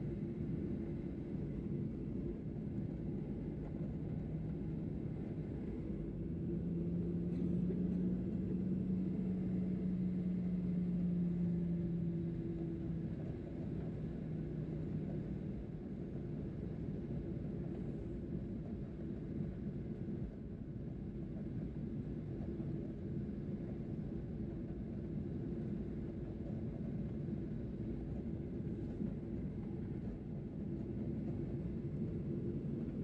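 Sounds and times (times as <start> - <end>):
jet engines rumbling in cabin: 0.0 - 33.0.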